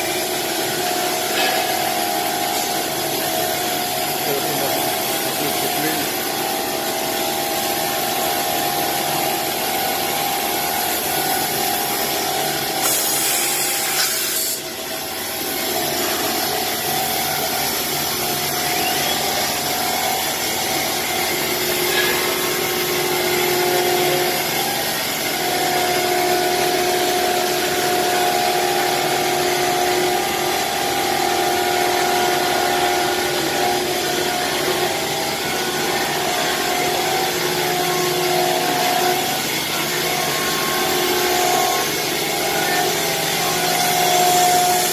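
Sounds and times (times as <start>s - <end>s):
cnc router cutting: 0.0s - 44.9s
high hiss burst: 12.8s - 14.6s.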